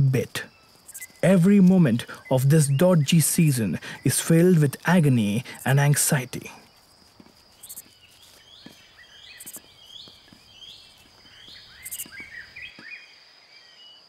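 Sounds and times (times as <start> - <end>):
bird calling: 0.0 - 6.5, 7.5 - 14.0
high insect whine: 0.0 - 14.0
high insect buzzes: 0.5 - 1.2, 5.0 - 13.0.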